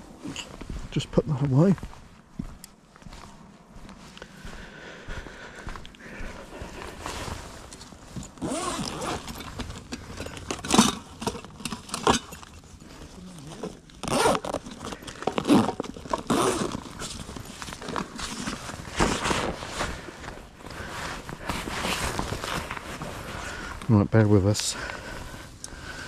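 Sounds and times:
backpack zipper pulled: 0:08.4 - 0:09.8, 0:13.1 - 0:19.6
fabric rustling: 0:12.5 - 0:23.8.

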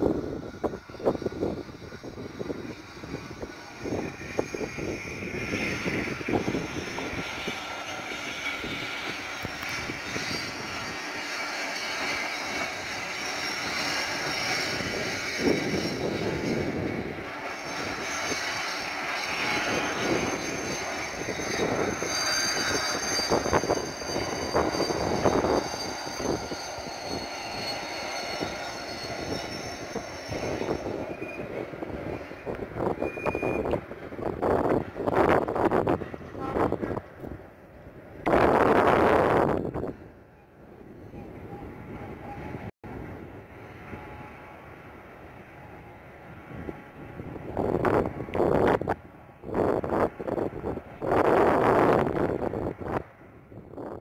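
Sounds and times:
diesel locomotive engines droning: 0:00.0 - 0:54.0.

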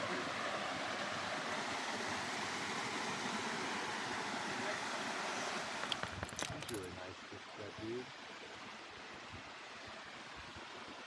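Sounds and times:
waterfall rushing: 0:00.0 - 0:06.9.

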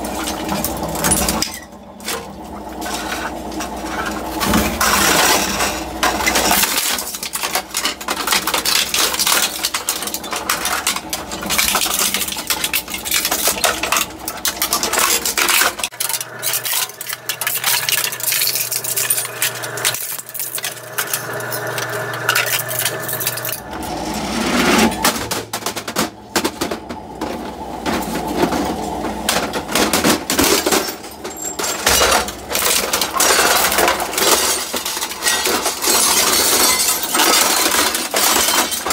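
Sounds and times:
shredder crunching plastic: 0:00.0 - 0:38.9.

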